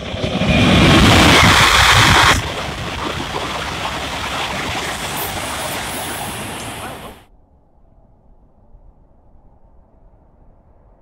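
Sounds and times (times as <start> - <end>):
high-speed train passing: 0.0 - 7.3.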